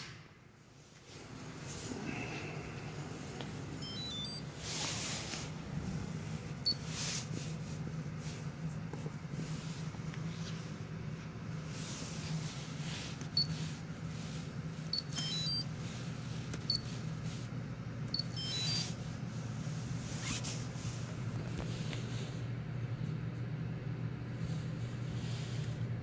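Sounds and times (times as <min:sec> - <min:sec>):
steady low hum: 0:00.0 - 0:26.0
multi-tone chirps: 0:03.8 - 0:04.5, 0:18.2 - 0:18.9
short high beeps: 0:03.8 - 0:04.5, 0:15.0 - 0:15.6, 0:18.2 - 0:18.9.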